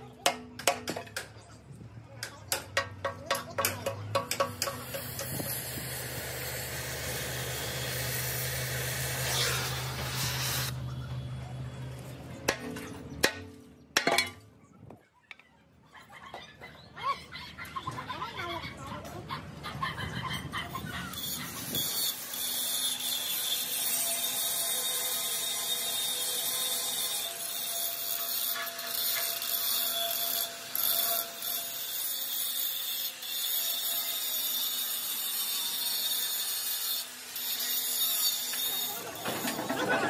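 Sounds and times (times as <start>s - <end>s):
angle grinder grinding steel: 4.2s - 10.8s, 21.0s - 40.0s.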